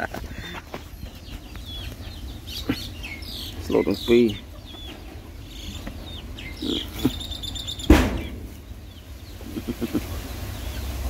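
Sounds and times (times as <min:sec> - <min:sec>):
bird chirping: 0:00.0 - 0:11.0
chickens clucking: 0:00.0 - 0:11.0
sharp knock: 0:07.8 - 0:08.5.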